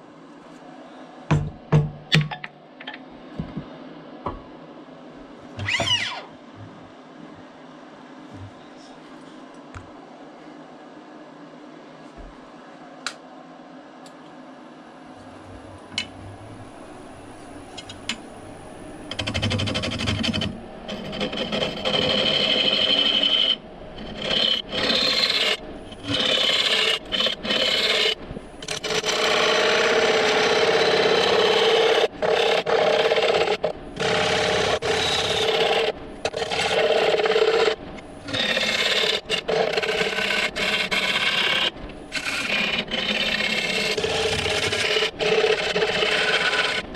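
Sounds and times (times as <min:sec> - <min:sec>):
gouge scraping wood on lathe: 0:19.1 - 0:46.9.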